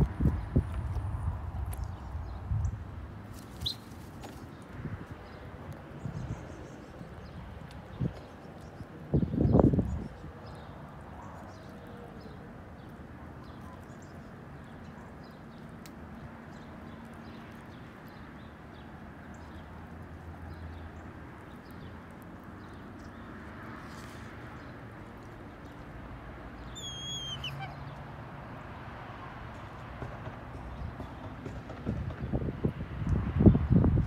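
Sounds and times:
falling bird call: 26.7 - 27.9.

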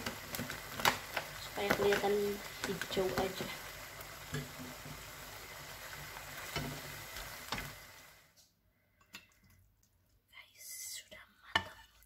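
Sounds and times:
noodles sizzling in a wok: 0.0 - 8.4.

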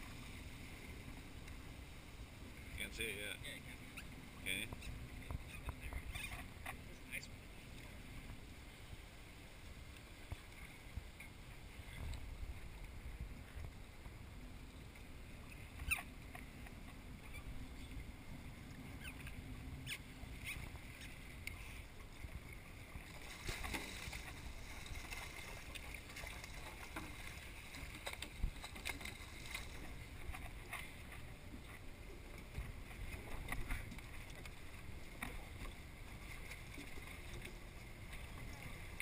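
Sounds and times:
water washing against boat: 10.0 - 39.0.

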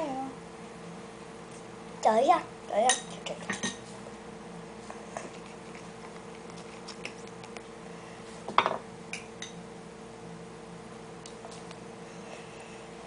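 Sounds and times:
steady hum: 0.0 - 13.0
cup clattering on table: 8.5 - 8.8
tableware clinking: 8.5 - 9.6.

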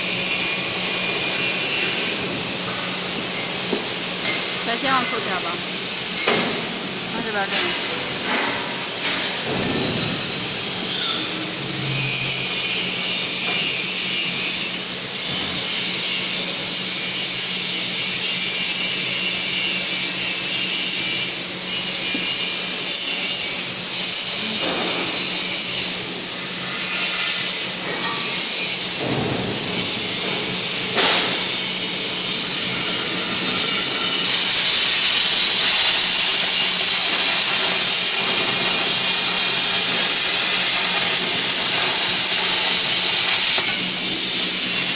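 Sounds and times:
plasma torch hissing: 0.0 - 2.6, 3.3 - 44.9
steady low hum: 0.0 - 44.9.

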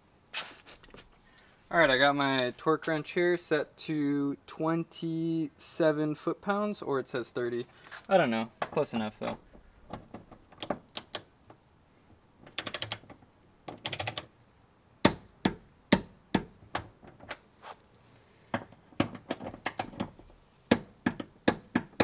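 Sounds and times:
sharp clicks and knocks: 8.6 - 11.6, 12.4 - 14.3, 15.0 - 17.4, 18.5 - 22.0
torque wrench ratchet clicks: 13.8 - 14.3.

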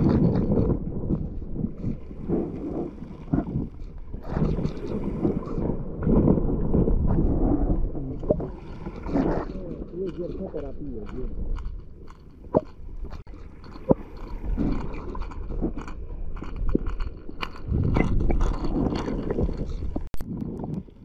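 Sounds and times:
water sloshing: 0.0 - 20.1
muffled underwater rumble: 0.0 - 21.0
clicks and scrapes: 8.1 - 20.9.

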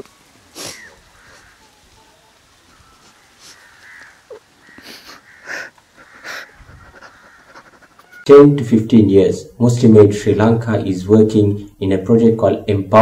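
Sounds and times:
man crying quietly: 4.2 - 8.2
sobbing breaths: 4.3 - 8.2.

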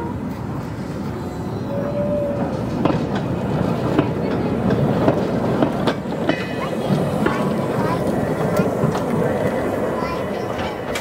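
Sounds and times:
train wheels clicking over rail joints: 2.4 - 11.0.

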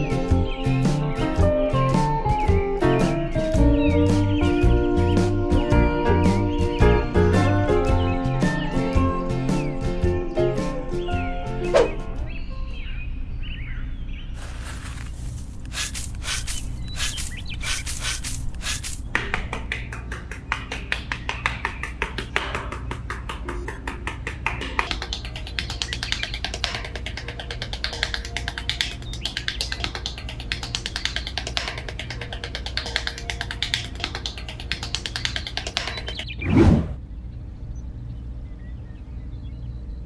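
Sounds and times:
quiet background music: 0.0 - 15.6, 19.3 - 36.4
metal trowel scraping sand: 14.4 - 19.1.

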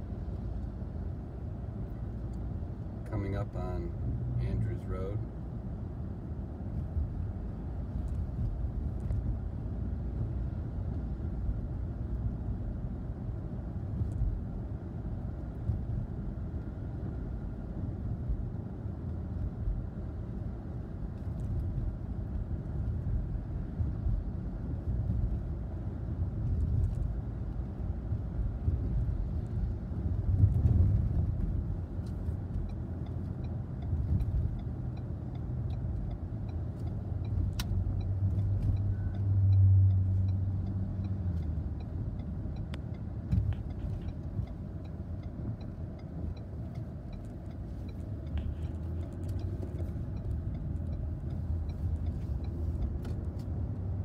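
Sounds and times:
car engine and tyres rumble: 0.0 - 54.0
faint ticks: 32.0 - 53.6.

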